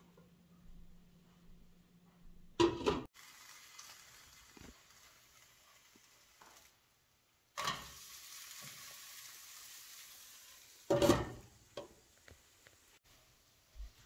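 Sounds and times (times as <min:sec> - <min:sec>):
crepe sizzling in frying pan: 0:03.1 - 0:13.1.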